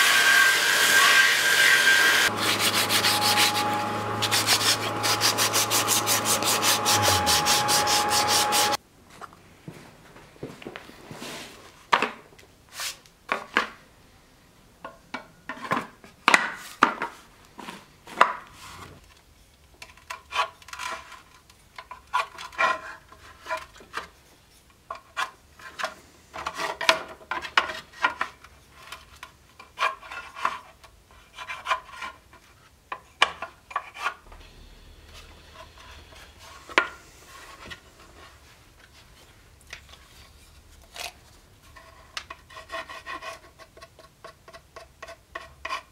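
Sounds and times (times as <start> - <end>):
hand tool rasping on wood: 2.2 - 8.8.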